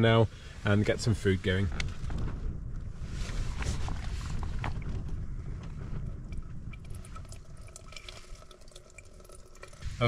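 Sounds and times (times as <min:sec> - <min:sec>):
wind on microphone: 0:00.1 - 0:08.5, 0:09.6 - 0:10.0
water trickling into plastic bottle: 0:03.3 - 0:10.0.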